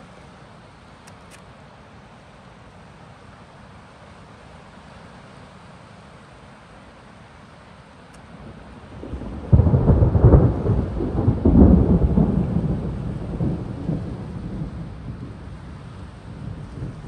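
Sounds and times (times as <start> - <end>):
thunder rumble and clap: 9.0 - 17.0.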